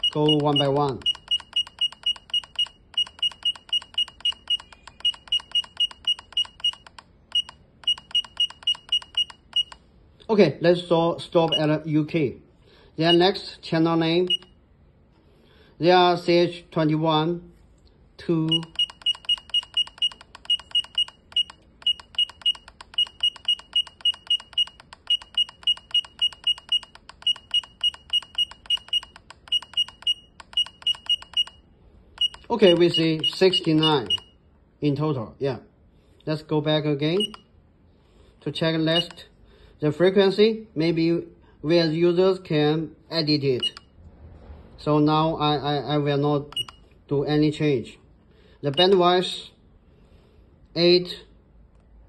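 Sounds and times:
short high-pitched key beeps: 0.0s - 9.8s, 11.5s - 11.7s, 14.3s - 14.6s, 18.5s - 31.6s, 32.2s - 34.4s, 37.2s - 37.4s, 46.5s - 46.9s.

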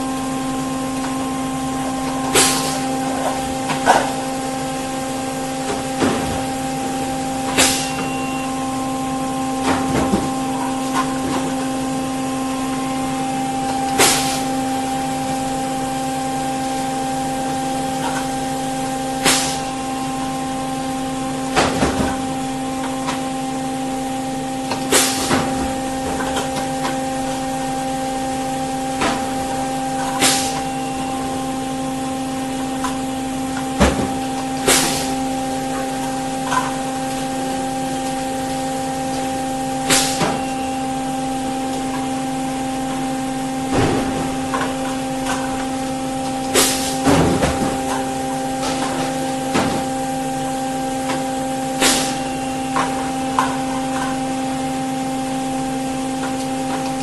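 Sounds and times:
machine humming: 0.0s - 57.0s
pneumatic valve air burst: 2.3s - 2.9s, 7.5s - 8.1s, 14.0s - 14.5s, 19.2s - 19.7s, 24.9s - 25.4s, 30.0s - 30.7s, 34.6s - 35.1s, 39.8s - 40.4s, 46.5s - 47.1s, 51.8s - 52.3s.

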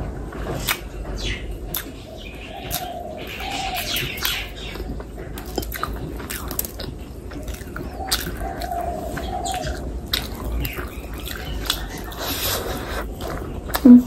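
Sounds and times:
woman chewing with mouth clicks: 1.7s - 2.0s, 2.6s - 14.0s
low wavering cooing hum: 7.2s - 14.0s.

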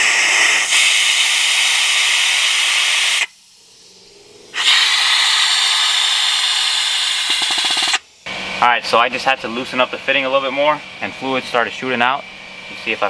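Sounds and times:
pneumatic bleeder gun hissing: 0.0s - 8.1s.

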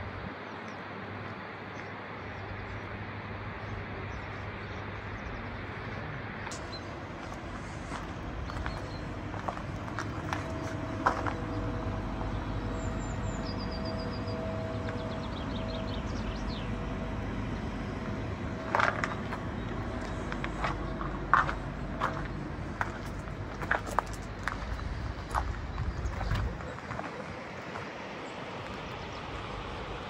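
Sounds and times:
low rumble with faint hum: 0.0s - 30.0s
footsteps on gravel: 6.5s - 12.5s, 18.1s - 27.9s.

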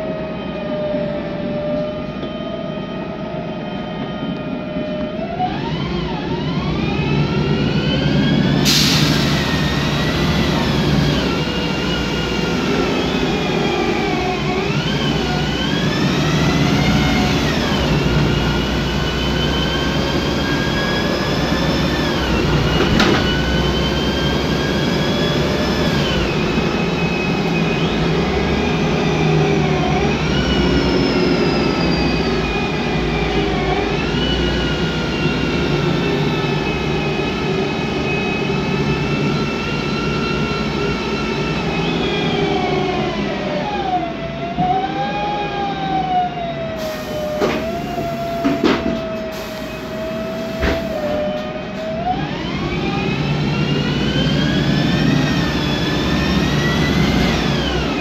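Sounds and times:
bus engine hum: 0.0s - 58.0s
air hiss: 8.6s - 10.0s, 46.8s - 48.6s, 49.3s - 51.1s
bus gearbox whine: 12.7s - 28.4s.

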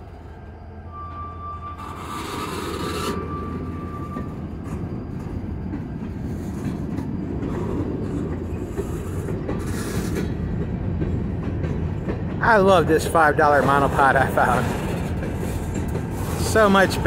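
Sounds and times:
train wheels rumbling on rail: 0.0s - 17.0s
high squeal: 0.2s - 5.6s.

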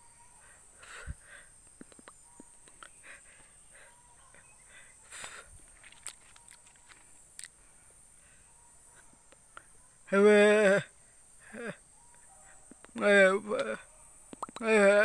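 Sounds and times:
footsteps on leafy dirt path: 5.2s - 7.3s.

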